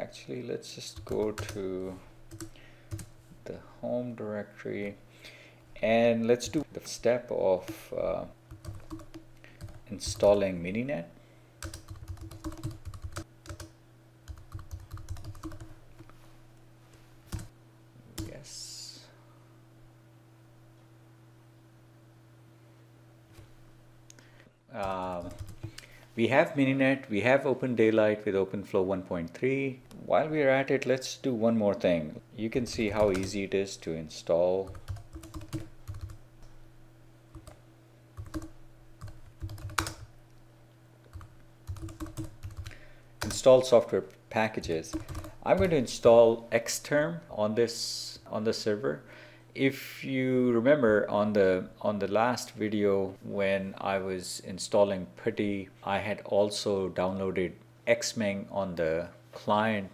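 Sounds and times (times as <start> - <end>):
faint low hum: 0.0 - 59.9
computer keyboard keystrokes: 8.5 - 10.3, 11.6 - 13.7, 14.3 - 15.7, 32.8 - 33.3, 34.7 - 36.2, 38.2 - 40.1, 41.1 - 43.4, 44.9 - 45.7.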